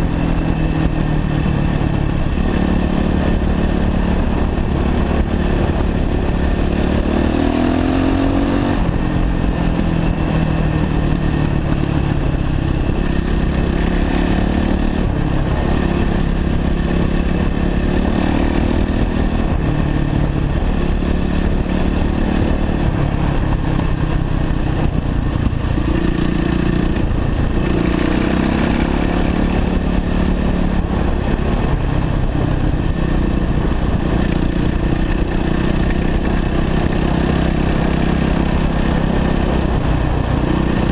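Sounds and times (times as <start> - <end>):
dirt bike engine revving: 2.4 - 11.8, 25.8 - 31.8.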